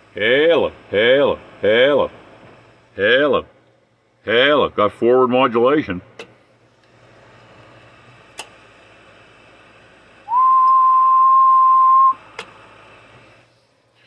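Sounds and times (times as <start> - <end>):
low hiss and hum: 0.0 - 14.0
person whistling one note: 10.3 - 12.2.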